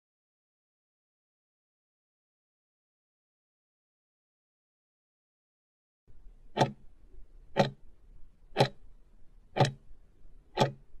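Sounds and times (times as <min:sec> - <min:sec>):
faint low hum: 0:06.1 - 0:11.0
sharp clock ticks: 0:06.5 - 0:06.8, 0:07.5 - 0:07.8, 0:08.6 - 0:08.8, 0:09.5 - 0:09.8, 0:10.5 - 0:10.9.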